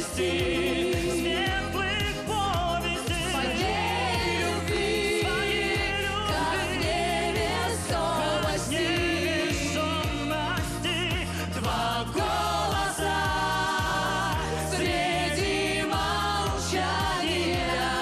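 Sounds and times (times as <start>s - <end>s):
man singing with vibrato: 0.0s - 4.0s, 8.8s - 12.3s
bass line: 0.0s - 18.0s
steady beat: 0.0s - 18.0s.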